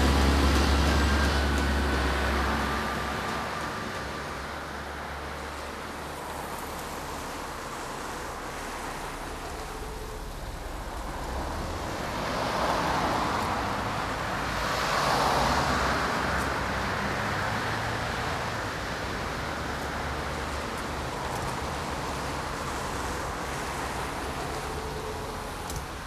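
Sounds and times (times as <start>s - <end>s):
cars passing: 0.0s - 26.0s
steady low rumble: 6.9s - 14.4s.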